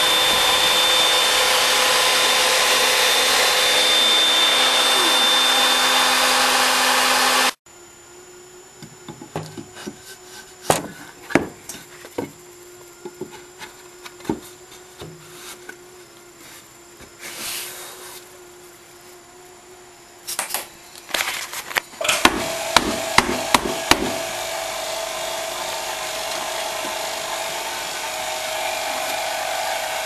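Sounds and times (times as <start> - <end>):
router spindle cutting wood: 0.0 - 7.6, 22.0 - 30.0.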